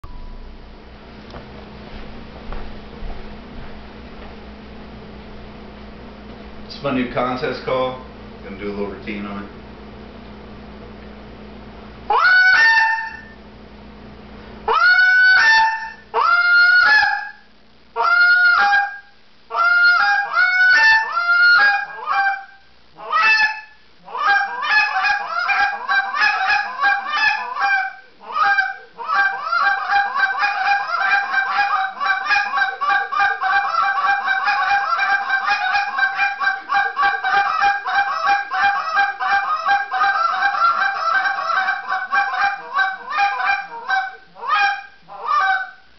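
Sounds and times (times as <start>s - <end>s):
goose call honks and clucks: 12.1s - 13.4s, 14.7s - 17.4s, 18.0s - 45.9s.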